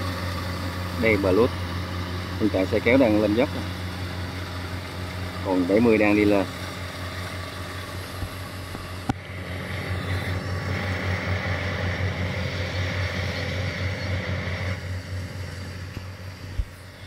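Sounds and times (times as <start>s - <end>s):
diesel engine drone: 0.0s - 17.0s
high whir: 0.0s - 17.0s.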